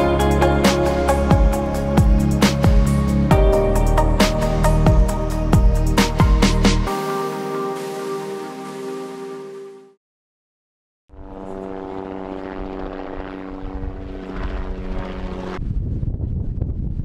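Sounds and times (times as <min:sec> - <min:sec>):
helicopter flying overhead: 0:00.0 - 0:03.3, 0:11.1 - 0:15.7
background music: 0:00.0 - 0:10.0
low gusty rumble: 0:11.2 - 0:17.0.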